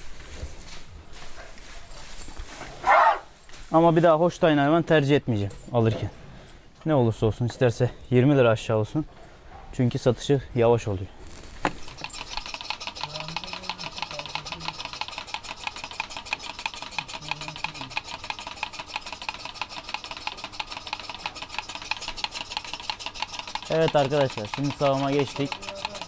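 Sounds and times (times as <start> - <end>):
machine clicking fast: 11.8 - 26.0.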